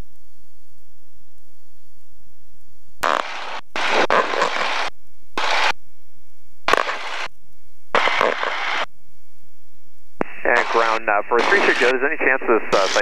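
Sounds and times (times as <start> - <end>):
garbled radio intercom bursts: 3.0 - 4.8, 10.2 - 13.0.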